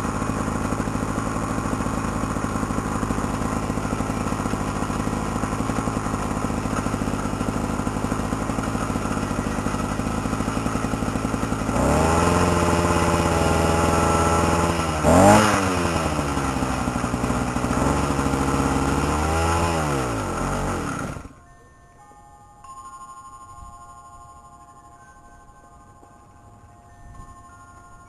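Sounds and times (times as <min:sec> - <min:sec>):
two-stroke engine revving: 0:00.0 - 0:21.4.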